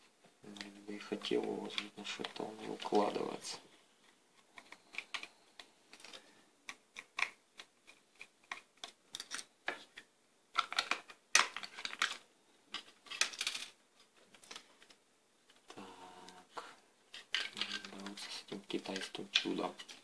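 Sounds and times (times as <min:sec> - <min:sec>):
plastic clicks and rattles: 0:04.4 - 0:15.8, 0:17.1 - 0:20.0.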